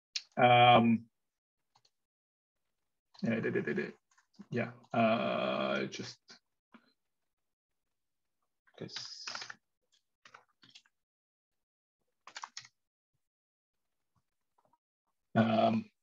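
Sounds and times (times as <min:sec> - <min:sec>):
keyboard typing: 0:12.2 - 0:12.7.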